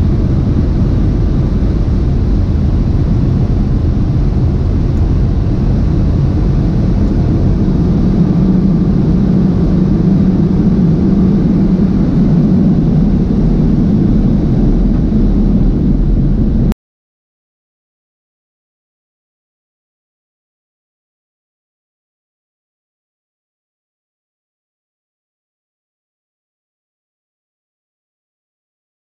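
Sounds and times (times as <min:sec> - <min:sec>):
low hum: 0:00.0 - 0:16.8.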